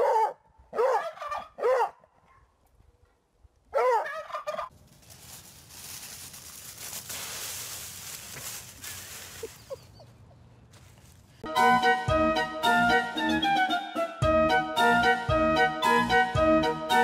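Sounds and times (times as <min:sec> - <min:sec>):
turkey gobbling: 0:00.9 - 0:01.8, 0:03.8 - 0:04.7
dry leaves rustling: 0:04.6 - 0:11.4.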